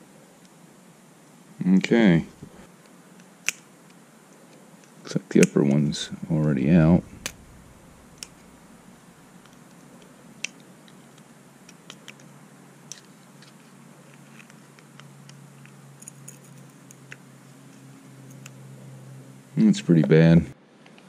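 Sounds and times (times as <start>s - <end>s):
low steady hum: 0.0s - 2.8s, 5.6s - 10.4s.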